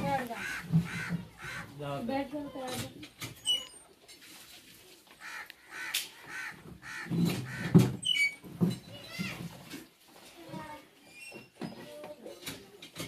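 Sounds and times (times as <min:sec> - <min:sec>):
plastic chairs knocking: 0:00.0 - 0:01.7, 0:06.3 - 0:10.7
crows cawing: 0:00.0 - 0:01.8, 0:05.2 - 0:08.0.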